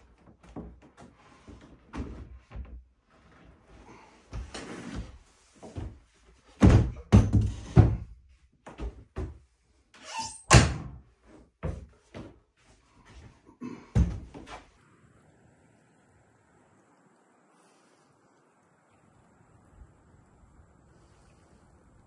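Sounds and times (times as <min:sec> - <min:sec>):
wooden knocks and thumps: 0:04.3 - 0:09.5.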